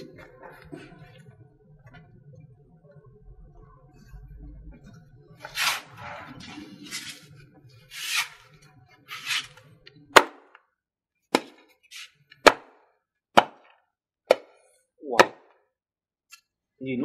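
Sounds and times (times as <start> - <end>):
knife chopping on wooden board: 11.3 - 11.7, 12.4 - 12.8, 13.4 - 14.6, 15.2 - 15.5.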